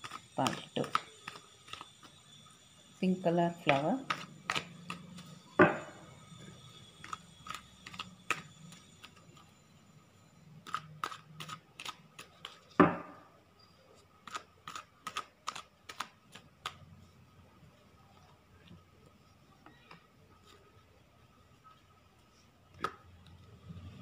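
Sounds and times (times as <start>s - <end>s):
knocks on a table: 5.6s - 5.8s.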